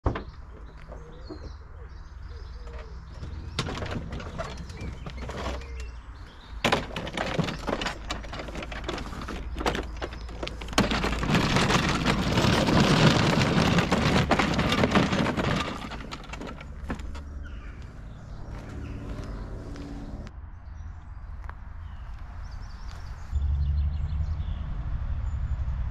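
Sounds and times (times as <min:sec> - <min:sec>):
knocks and clatters of lifting: 0:00.0 - 0:01.7, 0:02.4 - 0:19.3
plastic wheels rattling over driveway: 0:00.0 - 0:19.2
birds calling: 0:00.0 - 0:20.3.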